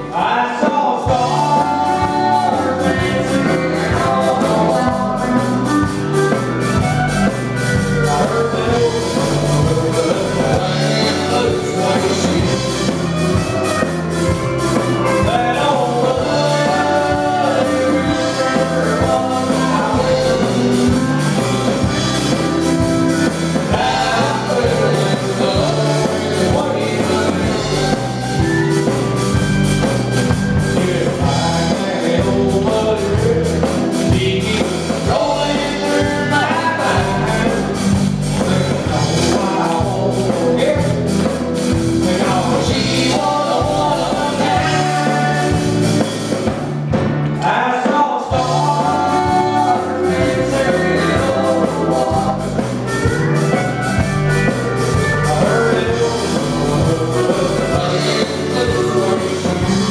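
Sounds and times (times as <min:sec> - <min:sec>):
person singing: 0:00.0 - 0:46.5, 0:47.4 - 0:59.9
live country band playing: 0:00.0 - 0:59.9.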